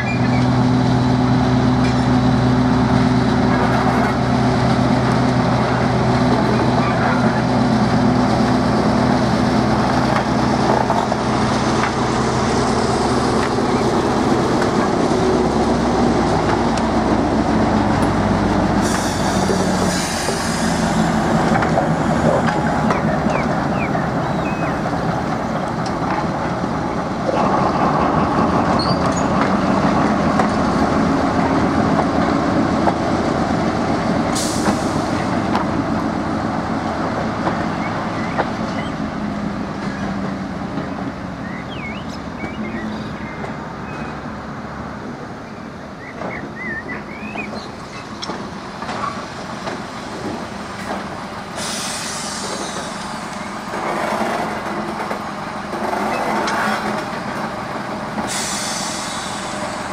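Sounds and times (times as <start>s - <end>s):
diesel locomotive engine hum: 0.0s - 59.9s
wagons rolling on rails: 53.6s - 57.6s.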